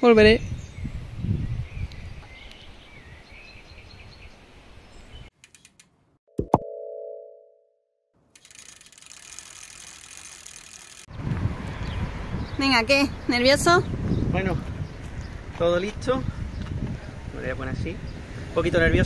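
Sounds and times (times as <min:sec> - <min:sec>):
sharp clicks: 0:05.4 - 0:06.0, 0:08.4 - 0:11.1.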